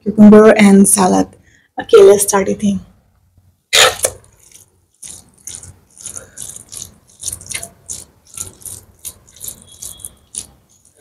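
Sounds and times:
fingers mixing sticky rice: 4.2s - 11.0s.

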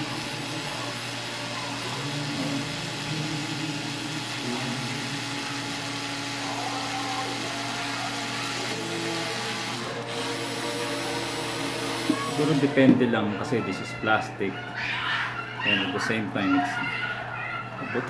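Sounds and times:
cordless screwdriver motor running: 0.0s - 12.9s.

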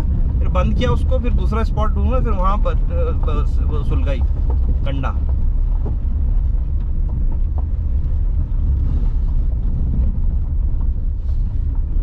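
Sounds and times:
car driving on dirt track: 0.0s - 12.0s.

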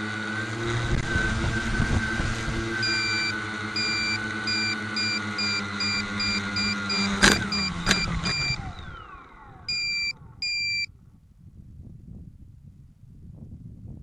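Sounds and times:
rotors spinning down: 0.0s - 10.9s
electric motors and propellers humming: 0.0s - 11.1s
short electronic beeps: 2.8s - 8.6s, 9.7s - 10.9s.

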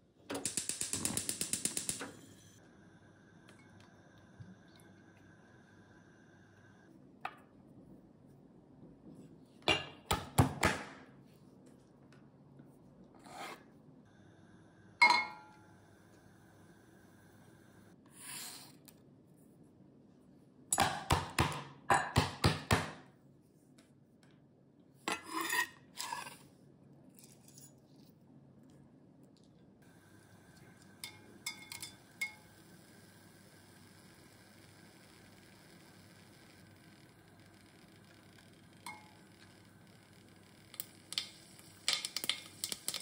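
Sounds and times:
spices clicking into saucepan: 40.6s - 43.0s.

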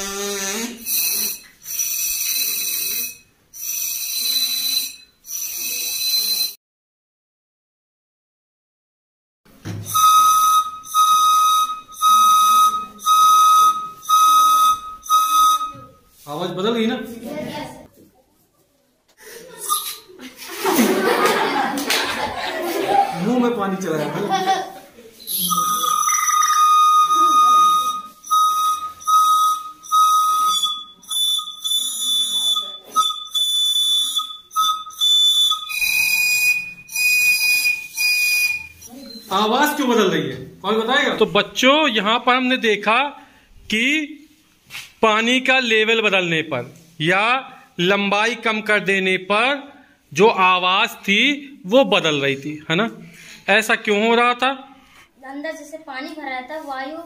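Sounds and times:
plastic pipe whistle blasts: 0.1s - 6.6s, 9.8s - 16.1s, 25.3s - 38.9s.

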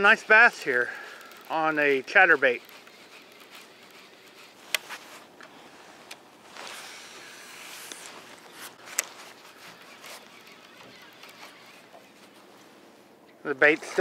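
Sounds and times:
fishing reel clicks: 0.0s - 4.8s, 9.8s - 11.9s.

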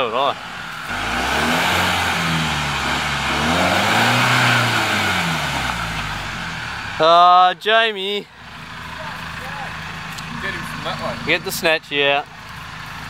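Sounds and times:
engine revving hard: 0.0s - 7.2s.

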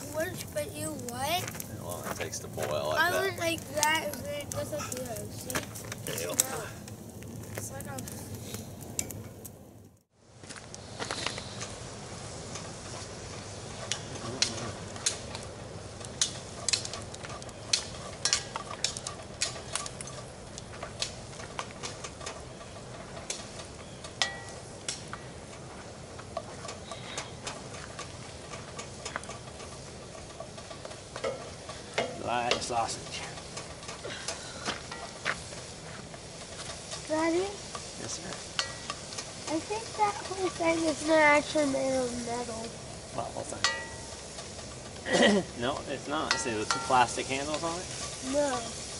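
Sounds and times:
sausage sizzling in a skillet: 0.0s - 9.8s, 10.7s - 48.9s
spatula scraping and tapping pan: 16.2s - 41.8s, 46.2s - 48.2s.

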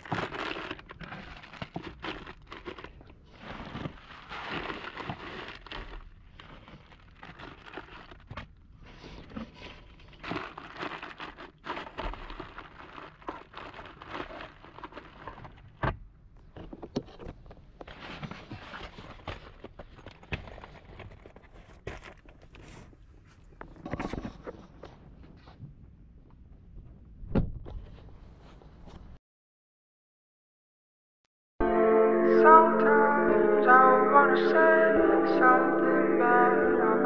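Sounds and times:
hands rustling plastic trim: 0.0s - 15.8s.

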